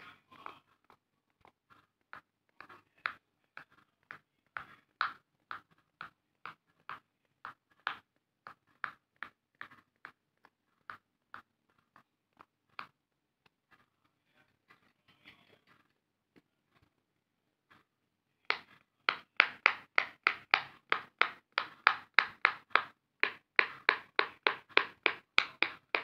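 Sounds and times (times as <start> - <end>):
fidget toy bubbles popping: 18.5 - 26.0.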